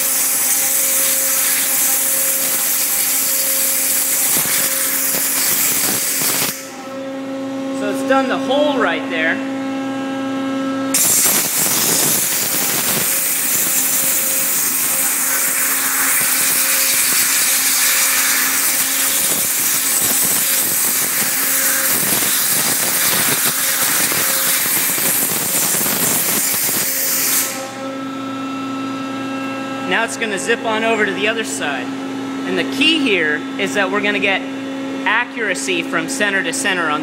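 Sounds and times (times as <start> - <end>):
waterjet hissing: 0.0 - 6.6, 11.0 - 27.6
pump hum: 0.0 - 32.7.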